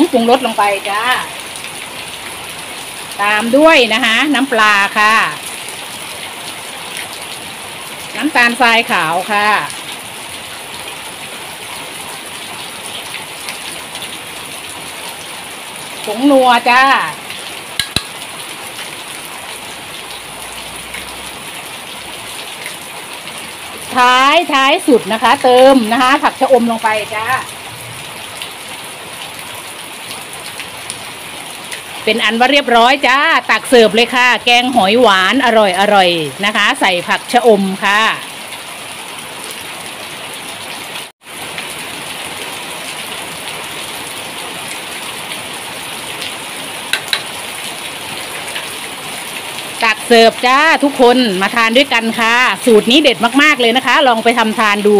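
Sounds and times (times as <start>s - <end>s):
sharp clicks: 17.8s - 18.2s.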